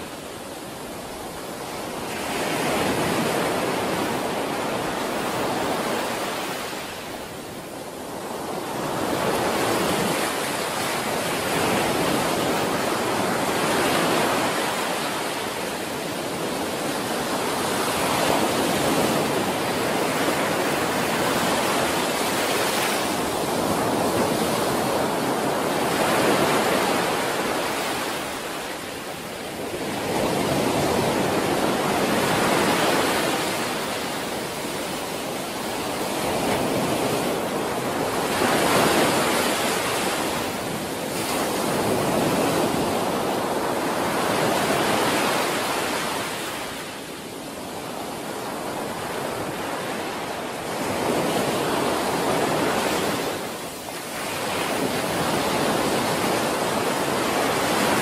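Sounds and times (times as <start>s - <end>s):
ocean waves breaking on a beach: 0.0s - 58.0s.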